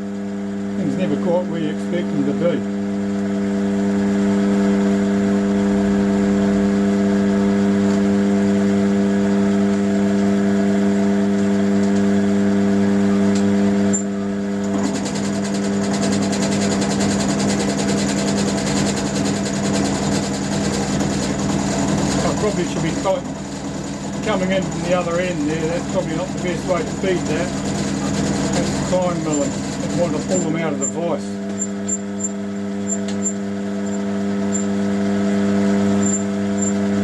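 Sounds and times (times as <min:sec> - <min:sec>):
mill drill motor hum: 0:00.0 - 0:37.0
end mill cutting chatter: 0:00.8 - 0:02.7, 0:11.9 - 0:34.9, 0:35.8 - 0:37.0.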